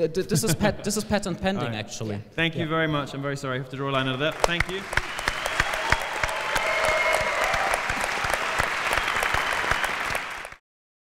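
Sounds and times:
large audience applauding: 0:04.0 - 0:10.6.

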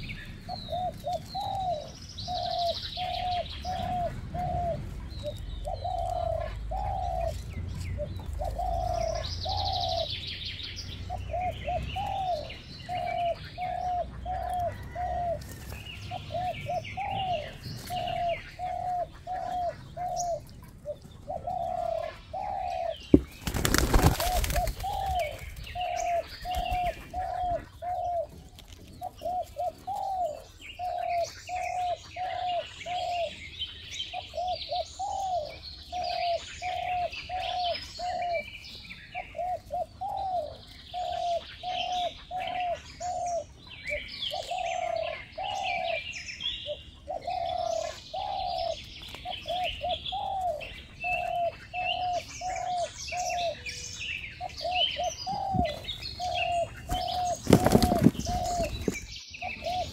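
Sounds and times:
bird cooing: 0:00.0 - 0:59.9
small birds chirping: 0:00.0 - 0:59.9.

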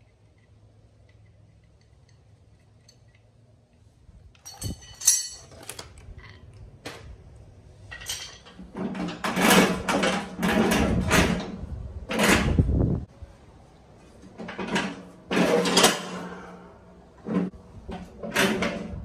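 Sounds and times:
metal rattling and scraping: 0:04.3 - 0:06.5, 0:07.8 - 0:12.8, 0:14.3 - 0:19.0
metal clinks and clank: 0:04.4 - 0:06.4, 0:07.9 - 0:08.6.

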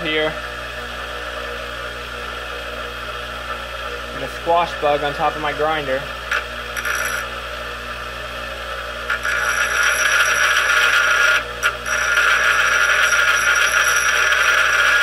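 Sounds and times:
bench grinder motor hum: 0:00.0 - 0:15.0
metal grinding on grinding wheel: 0:06.3 - 0:07.3, 0:09.1 - 0:15.0.

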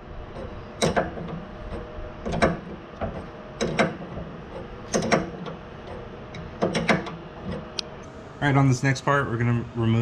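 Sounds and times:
wrench clacking on metal: 0:02.2 - 0:05.6, 0:06.3 - 0:07.6.

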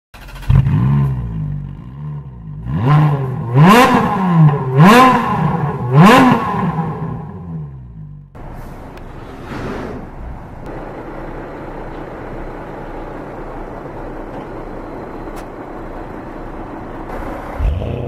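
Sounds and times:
car engine starting and revving: 0:00.2 - 0:08.4, 0:17.1 - 0:18.0.

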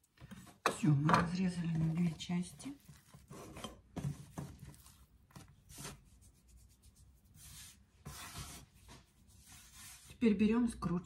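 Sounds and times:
hands rubbing dough on board: 0:01.6 - 0:10.2.

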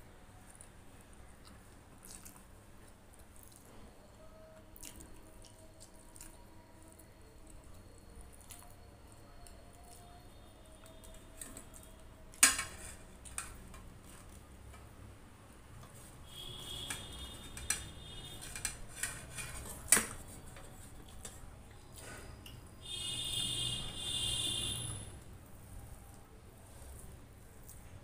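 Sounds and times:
metal bowl and plate clinking: 0:11.4 - 0:13.9, 0:16.8 - 0:21.4.

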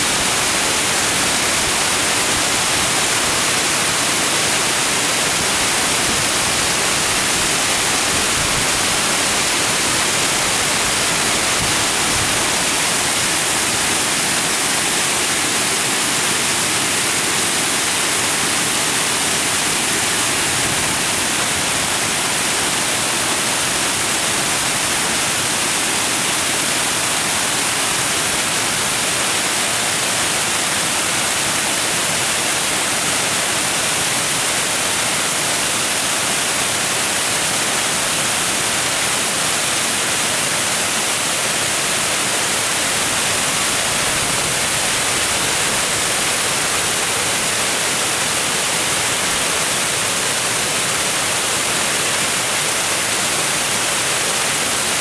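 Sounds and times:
water rushing over weir: 0:00.0 - 0:55.0.

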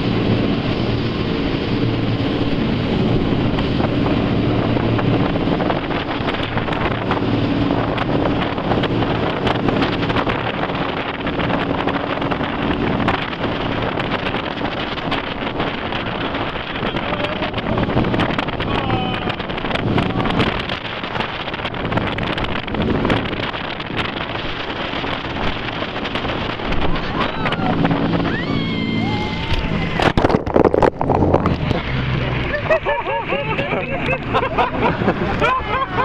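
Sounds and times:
jet boat engine hum: 0:00.0 - 0:36.0
water splashing against hull: 0:00.0 - 0:36.0
wind buffeting microphone: 0:00.0 - 0:36.0.

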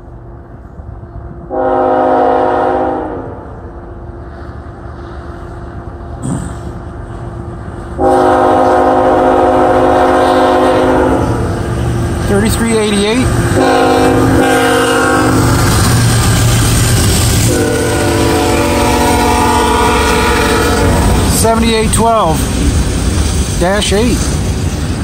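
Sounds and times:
train low rumble: 0:00.0 - 0:25.0
locomotive air horn chord: 0:01.5 - 0:03.6, 0:08.0 - 0:11.5, 0:13.6 - 0:15.6, 0:17.4 - 0:21.2.

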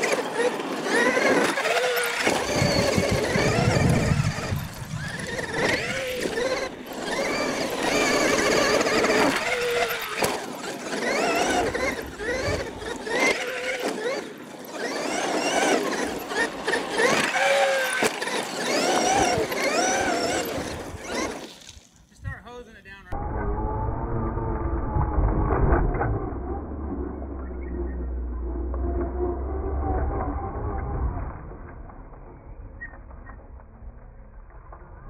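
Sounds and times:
electric motor whining: 0:00.0 - 0:21.9
tyres rumbling on dirt: 0:00.0 - 0:21.9.

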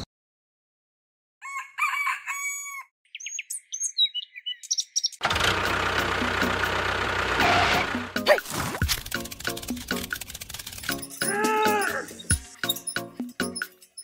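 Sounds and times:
rooster crowing: 0:01.4 - 0:02.9
birds chirping: 0:03.0 - 0:05.2, 0:10.8 - 0:14.0.

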